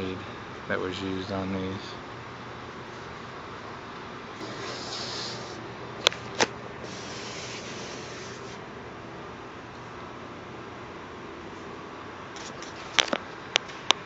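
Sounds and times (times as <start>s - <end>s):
hand rubbing on metal skin: 4.4s - 5.6s, 6.8s - 8.6s.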